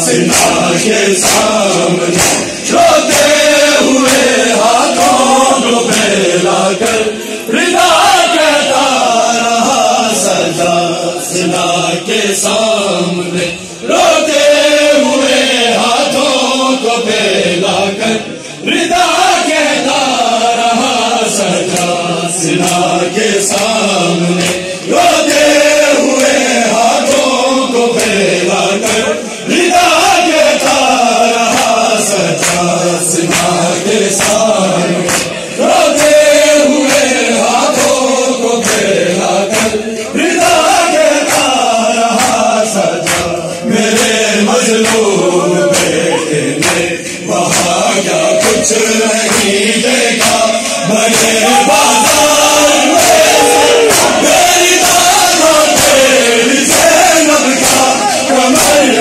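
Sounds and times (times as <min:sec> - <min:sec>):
men chanting a lament: 0:00.0 - 0:59.0
hands slapping bare chests: 0:00.2 - 0:03.4.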